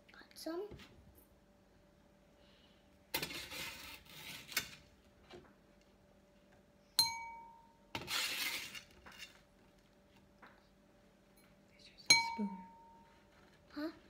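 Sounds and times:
metal spoon scraping metal pan: 0:03.2 - 0:04.8, 0:08.0 - 0:09.4
spoon clinking on dish: 0:07.0 - 0:07.7, 0:12.1 - 0:13.0.

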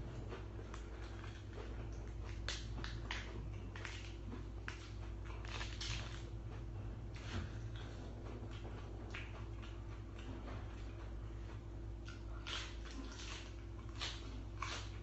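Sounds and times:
steady low hum: 0:00.0 - 0:15.0
lettuce leaf tearing and crackling: 0:00.7 - 0:06.2, 0:12.4 - 0:15.0.

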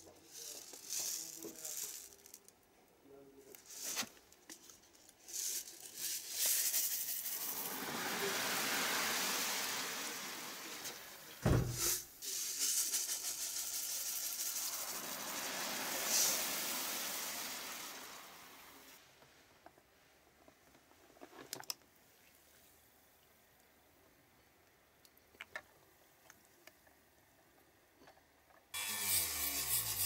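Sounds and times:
water hissing and fizzing: 0:05.8 - 0:19.1
knock: 0:11.4 - 0:11.9.

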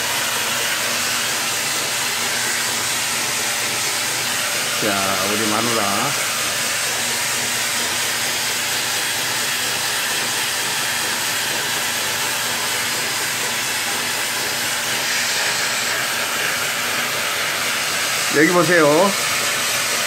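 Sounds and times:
vacuum cleaner running: 0:00.0 - 0:20.0.

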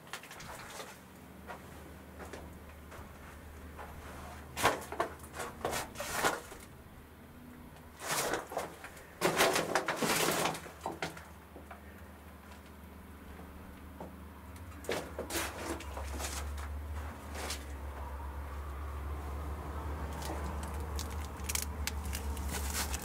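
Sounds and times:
footsteps crunching on rubble: 0:00.1 - 0:06.6, 0:14.8 - 0:17.8, 0:20.2 - 0:23.0.

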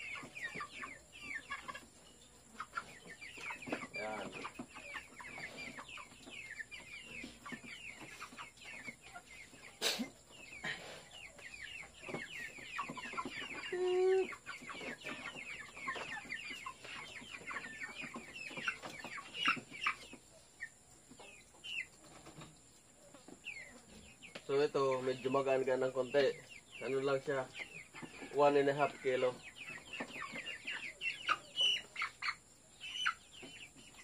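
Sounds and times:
chickens peeping and clucking: 0:00.0 - 0:34.0.

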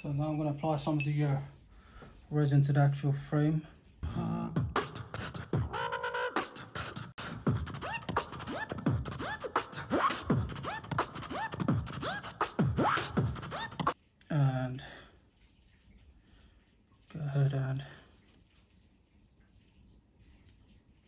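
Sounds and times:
vocal beatbox beat: 0:04.0 - 0:14.0.

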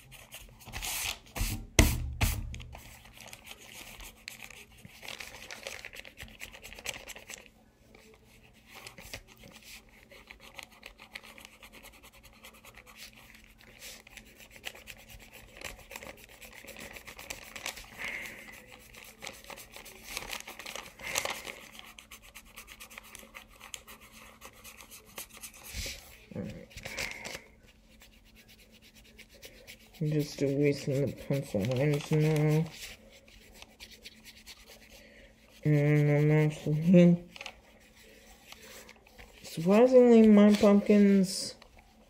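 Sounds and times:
eraser rubbing on paper: 0:00.0 - 0:04.8, 0:09.3 - 0:17.6, 0:27.7 - 0:38.8.

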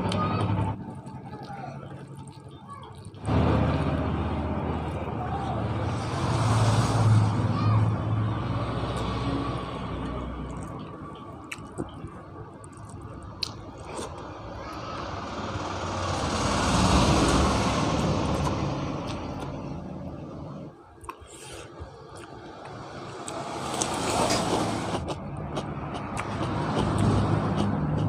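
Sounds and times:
chewing: 0:00.1 - 0:03.9, 0:10.0 - 0:14.3, 0:18.2 - 0:19.6, 0:21.0 - 0:28.0
vehicle passing: 0:03.2 - 0:11.4, 0:13.7 - 0:20.7, 0:21.9 - 0:28.0.

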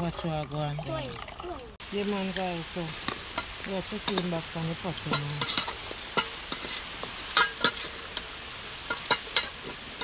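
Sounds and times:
food sizzling in a pot: 0:01.8 - 0:10.0.

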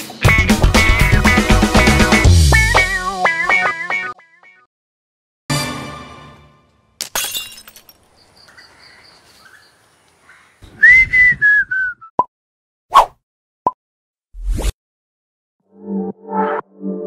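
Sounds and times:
whistle with falling pitch: 0:10.8 - 0:12.1.

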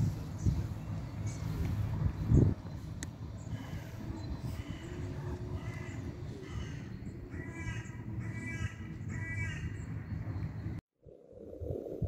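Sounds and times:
steady low rumble: 0:00.0 - 0:12.0
crow cawing: 0:05.6 - 0:09.7.

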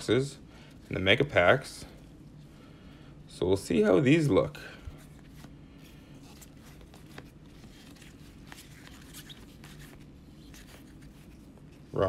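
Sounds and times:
low room hum: 0:00.0 - 0:12.0
cards rustling: 0:04.8 - 0:12.0.

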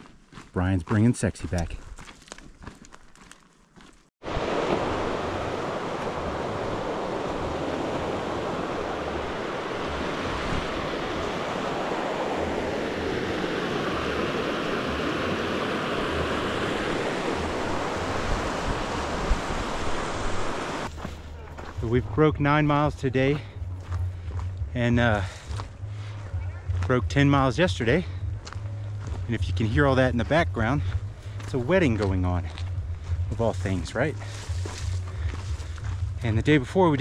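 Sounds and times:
creek rushing over rocks: 0:04.2 - 0:20.9.

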